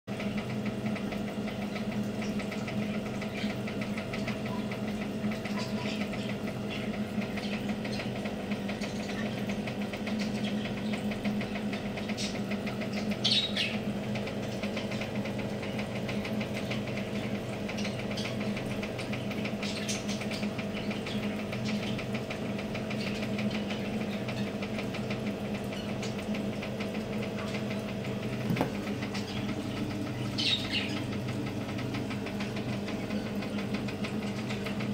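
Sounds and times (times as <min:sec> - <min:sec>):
electric machine humming and rattling: 0:00.1 - 0:34.9.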